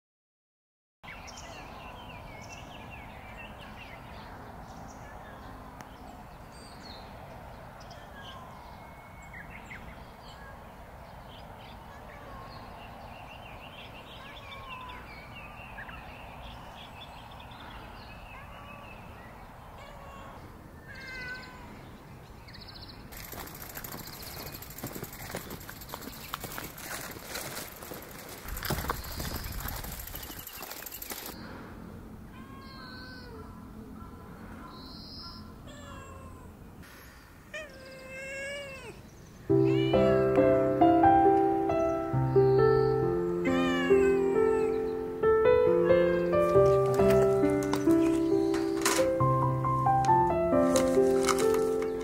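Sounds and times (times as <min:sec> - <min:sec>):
birds chirping and calling: 0:07.8 - 0:31.6, 0:32.4 - 0:36.4, 0:41.2 - 0:52.0.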